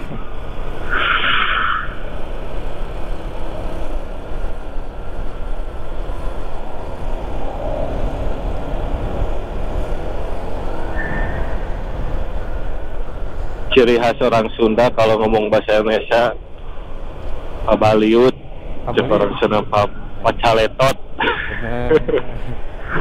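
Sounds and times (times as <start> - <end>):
wind rushing on microphone: 0.0 - 13.8.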